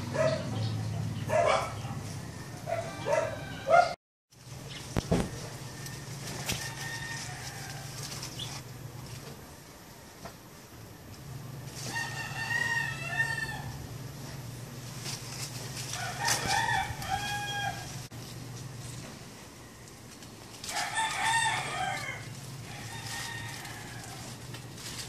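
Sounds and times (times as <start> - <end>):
rooster crowing: 2.0 - 4.0, 5.3 - 8.3, 11.7 - 14.0, 15.8 - 18.1, 20.6 - 24.6
steady low hum: 4.3 - 25.0.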